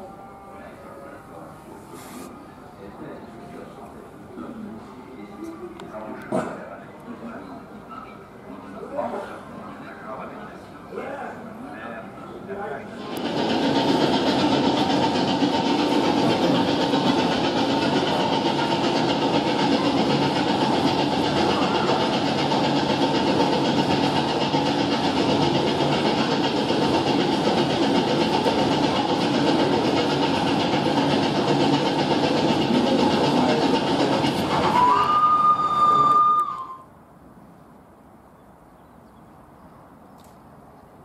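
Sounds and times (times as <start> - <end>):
steam locomotive hiss: 12.9 - 36.8
rail clatter: 13.0 - 36.8.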